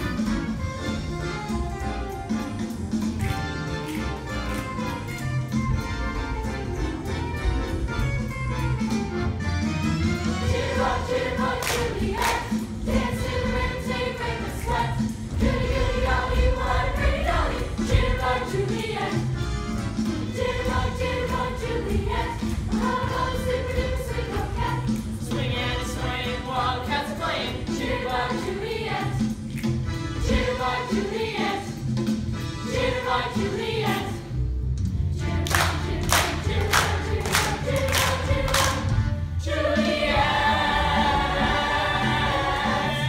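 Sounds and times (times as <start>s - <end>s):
upbeat accompanying music: 0.0s - 43.0s
chorus of young performers singing: 10.4s - 19.4s, 20.0s - 34.4s, 35.1s - 43.0s.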